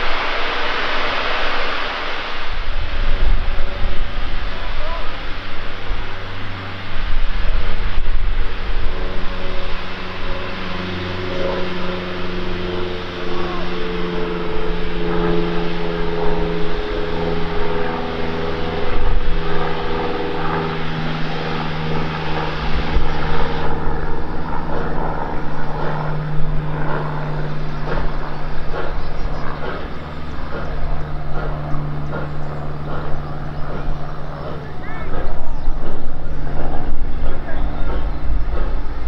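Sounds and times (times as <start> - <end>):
low mechanical hum: 0.0 - 39.0
steam locomotive exhaust beats: 0.0 - 39.0.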